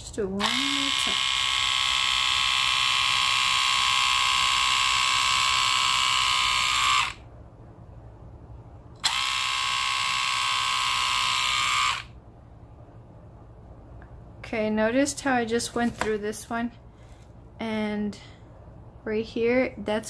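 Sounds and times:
hair trimmer motor whine: 0.4s - 7.2s, 9.0s - 12.2s.

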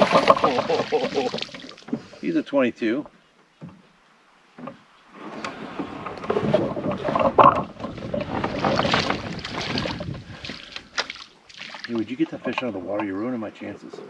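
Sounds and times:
water splashing and sloshing: 0.0s - 14.0s.

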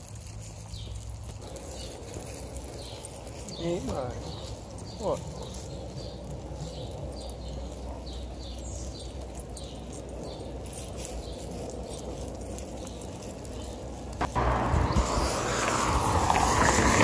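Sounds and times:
rush of noise: 14.2s - 17.0s.

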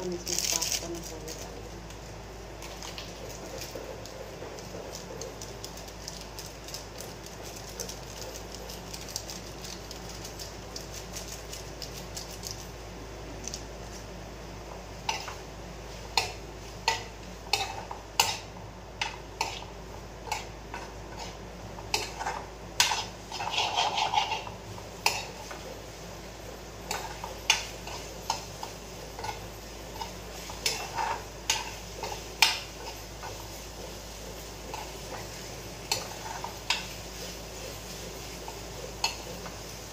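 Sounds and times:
steady background hiss: 0.0s - 39.9s
metal spoon scraping a pan: 16.1s - 19.7s, 20.3s - 25.6s, 26.9s - 33.6s, 34.6s - 39.6s.

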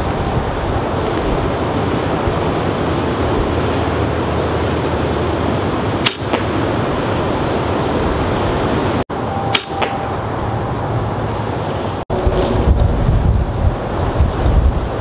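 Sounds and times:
wind buffeting microphone: 0.0s - 9.0s, 10.2s - 15.0s
bow shot snap: 6.0s - 6.5s, 9.5s - 10.0s.

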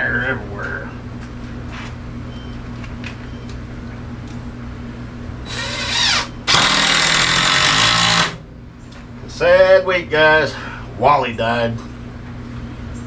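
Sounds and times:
cordless drill driving screws: 5.5s - 8.4s.

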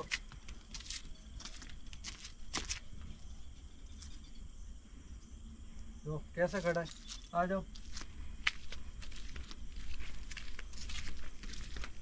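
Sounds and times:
scuffing footsteps: 0.0s - 3.1s, 6.6s - 12.0s
insect drone: 0.0s - 12.0s.

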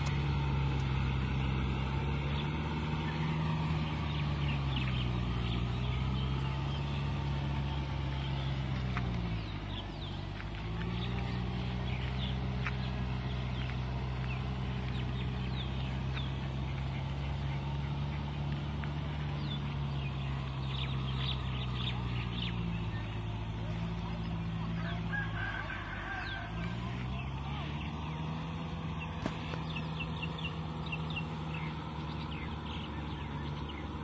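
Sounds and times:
tractor diesel engine under load: 0.0s - 34.0s.

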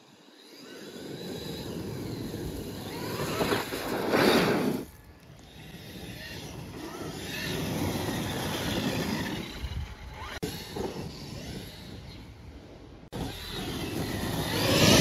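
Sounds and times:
electric motor whining: 13.2s - 15.0s.

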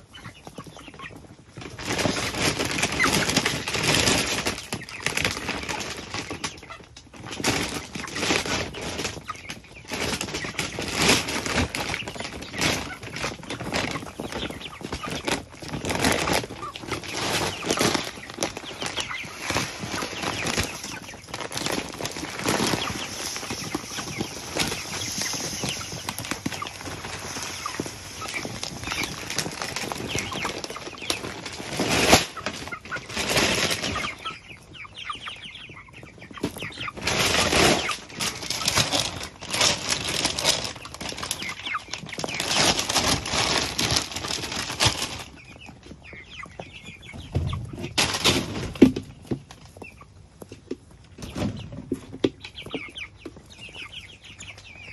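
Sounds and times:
chickens clucking: 0.0s - 54.9s
chickens pecking and scuffling in straw: 0.0s - 54.9s
feed pouring from a bag: 10.1s - 34.1s, 36.9s - 45.4s.

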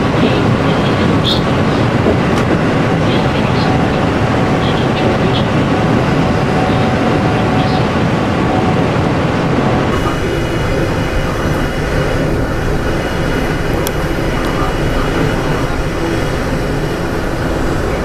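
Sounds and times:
train wheels on rails: 0.0s - 18.0s
faint high whine: 9.6s - 18.0s.

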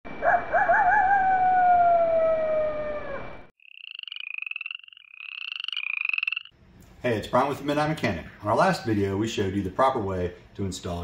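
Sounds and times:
wolf howling: 0.2s - 3.5s
rapid high trilling calls: 3.6s - 6.5s.

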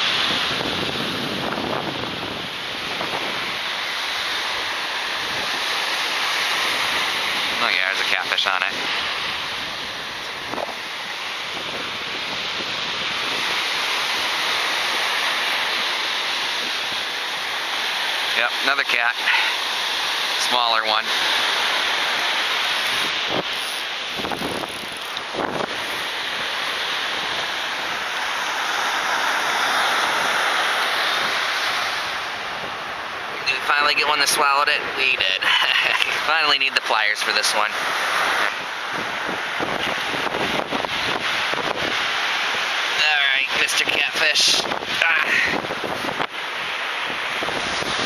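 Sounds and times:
wind noise on microphone: 0.0s - 17.4s, 21.1s - 28.2s, 37.8s - 42.7s, 43.6s - 48.0s
surf washing on beach: 0.0s - 48.0s.

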